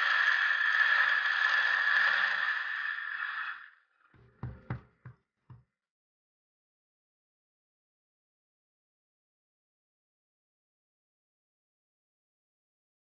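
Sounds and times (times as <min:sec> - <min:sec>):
electric coffee grinder whirring: 0:00.0 - 0:04.6.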